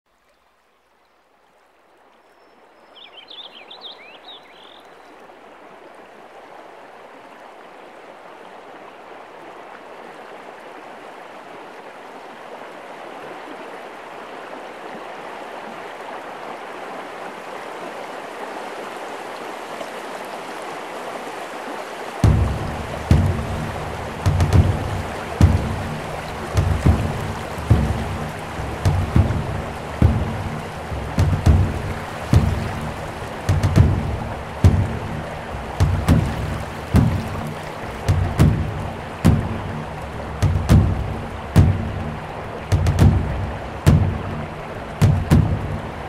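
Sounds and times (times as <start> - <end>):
rushing water: 0.1 - 46.0
birds chirping: 2.2 - 5.2, 22.2 - 46.0
loud low thump: 22.2 - 44.4, 45.0 - 45.8.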